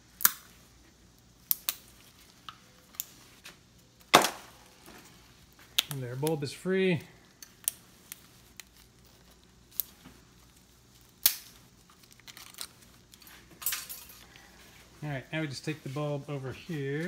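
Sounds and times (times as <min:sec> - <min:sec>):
crinkly rustling: 0:07.2 - 0:17.0.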